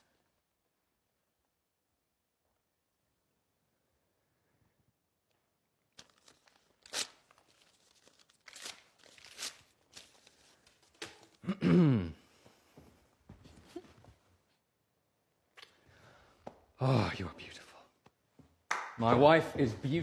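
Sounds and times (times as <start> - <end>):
paper tearing: 6.0 - 11.4.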